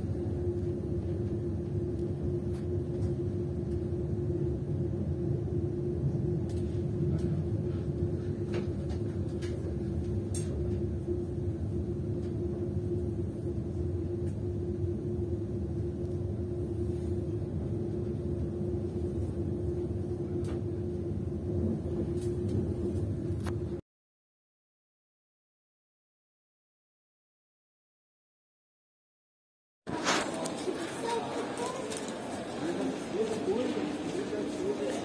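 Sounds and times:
constant low hum: 0.0s - 23.8s.

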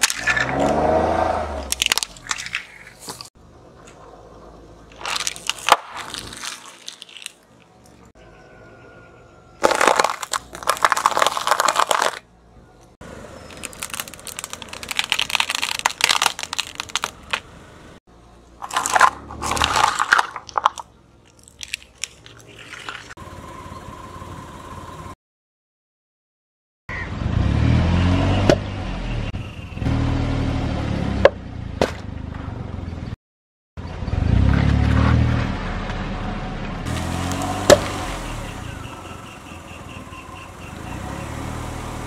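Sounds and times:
tyre crushing plastic: 1.6s - 3.3s, 4.9s - 7.4s, 9.6s - 12.2s, 13.5s - 17.5s, 18.6s - 23.1s
plastic keyboard cracking: 9.6s - 12.2s, 13.5s - 17.4s.

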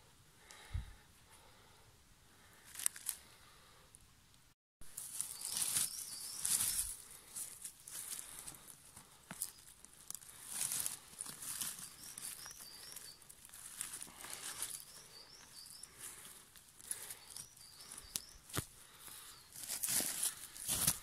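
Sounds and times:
dry leaves rustling and crackling: 4.9s - 18.7s, 19.5s - 21.0s
small bird high chirps: 5.1s - 7.0s, 11.4s - 16.2s, 16.9s - 18.6s
twigs snapping: 16.8s - 18.7s.

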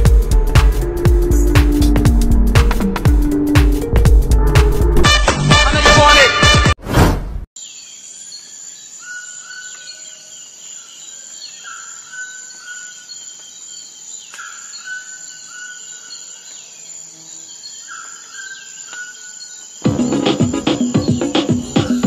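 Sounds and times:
insects droning: 7.6s - 22.0s.

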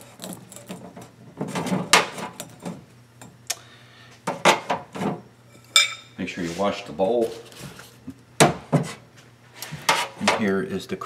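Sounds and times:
glass clink with ring: 5.5s - 6.2s.

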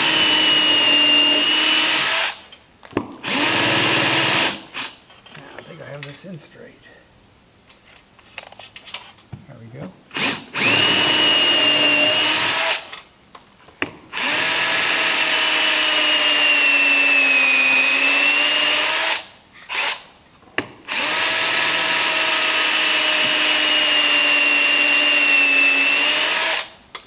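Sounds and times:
cordless drill whining: 0.0s - 2.4s, 3.2s - 5.0s, 10.1s - 13.0s, 14.1s - 20.1s, 20.9s - 26.7s.

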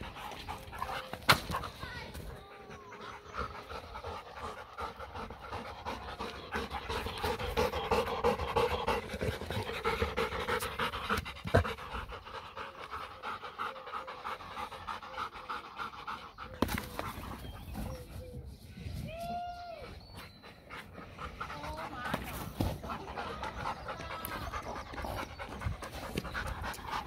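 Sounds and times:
dog panting: 0.0s - 18.4s, 20.0s - 27.0s.

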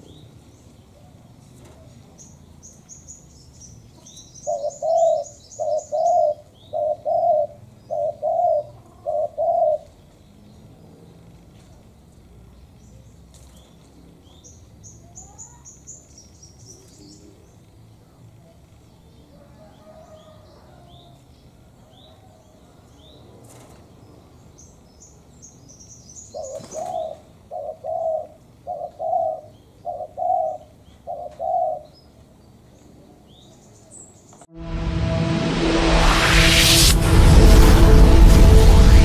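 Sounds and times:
small birds chirping: 0.0s - 34.5s
dove cooing: 4.4s - 10.0s, 26.3s - 31.9s.

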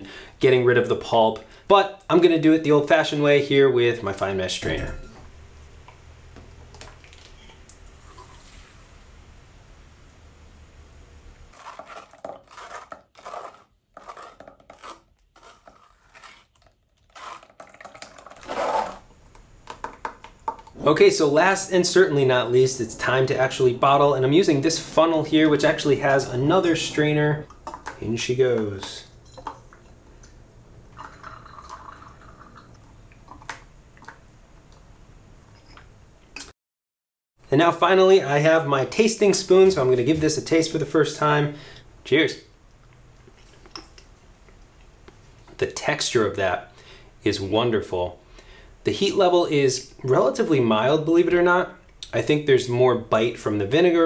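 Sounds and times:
sauce trickling into bottle: 31.0s - 34.2s.

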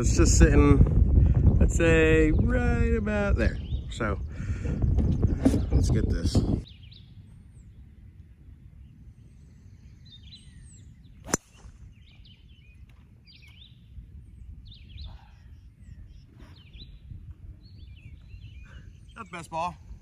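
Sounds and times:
birds chirping: 0.0s - 20.0s
golf driver striking ball: 11.3s - 11.7s.

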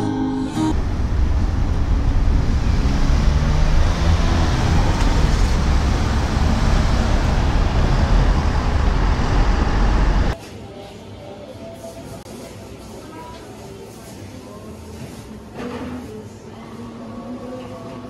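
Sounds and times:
road traffic rumble: 0.7s - 10.4s.

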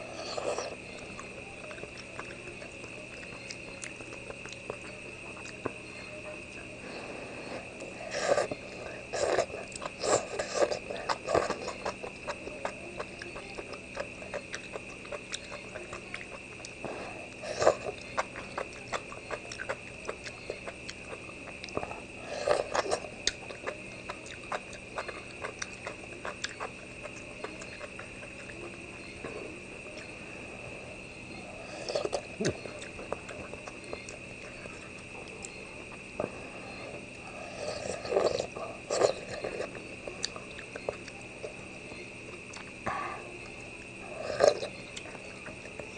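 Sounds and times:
person slurping and chewing: 7.6s - 12.4s, 37.5s - 40.4s.

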